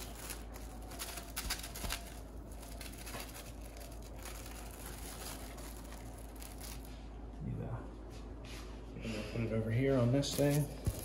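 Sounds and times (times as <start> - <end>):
plastic wrap crinkling: 0.0 - 7.2, 10.2 - 11.0.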